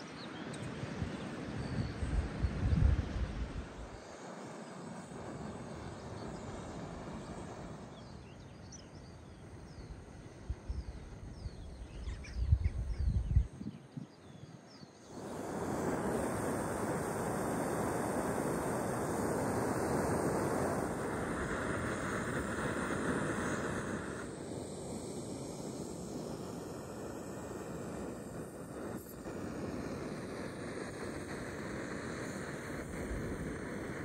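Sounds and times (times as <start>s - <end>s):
wind buffeting microphone: 0.8s - 4.1s, 10.4s - 14.4s
camping stove hissing: 3.4s - 9.0s, 15.0s - 34.0s
small birds chirping: 5.8s - 15.4s.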